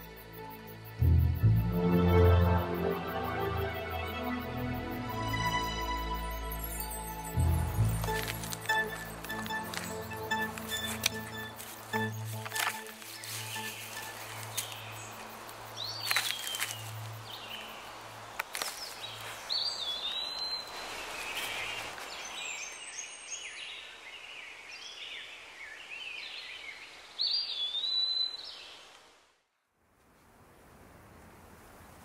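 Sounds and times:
birds chirping: 5.5s - 24.6s.

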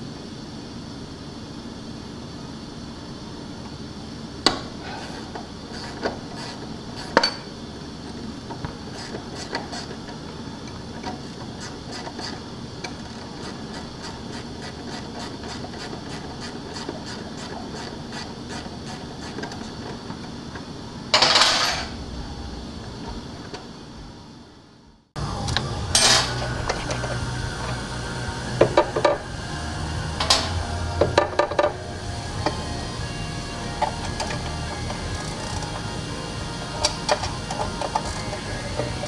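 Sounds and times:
steady background hiss: 0.0s - 39.0s
loud rasping noise: 25.2s - 39.0s
ratchet wrench ticking: 33.8s - 35.8s, 36.7s - 39.0s.

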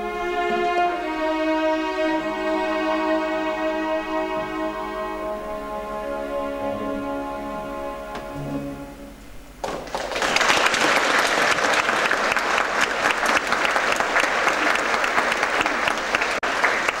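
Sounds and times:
orchestral music: 0.0s - 9.6s
audience applause: 9.6s - 17.0s.

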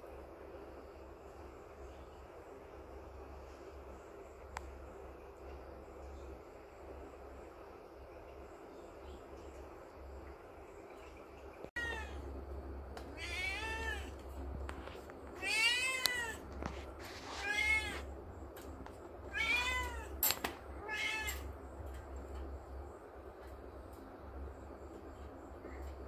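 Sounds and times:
kitten meowing: 13.2s - 14.1s, 15.4s - 16.4s, 19.3s - 20.1s.

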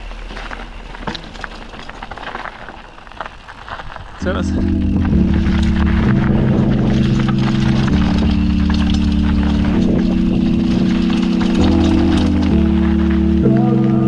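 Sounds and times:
ride clicks and rattles: 0.0s - 14.0s
background music with held chords: 4.2s - 14.0s.

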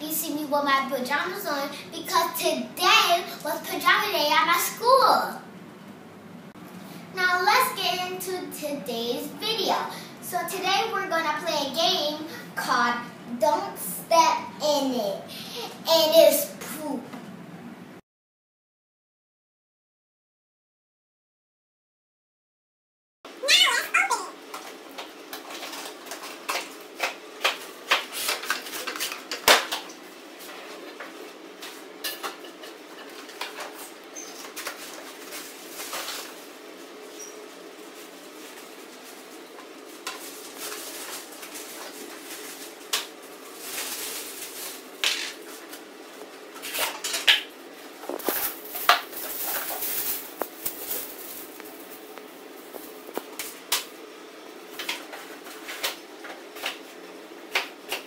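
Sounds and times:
packaging rustling: 37.9s - 45.6s, 48.0s - 53.4s.

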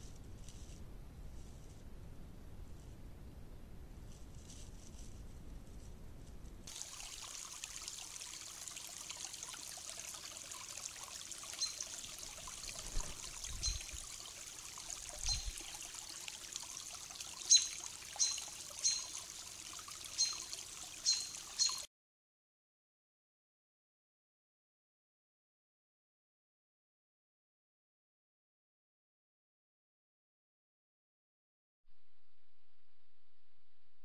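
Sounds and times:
creek trickling: 6.7s - 21.9s
bird chirping: 11.6s - 12.0s, 13.5s - 14.0s, 15.2s - 15.6s, 17.4s - 19.2s, 20.2s - 21.9s.

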